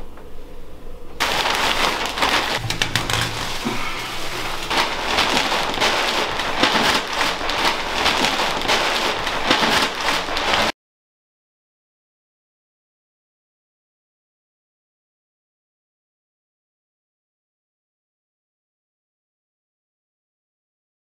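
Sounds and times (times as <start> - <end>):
plastic sheeting crinkling: 1.2 - 10.8.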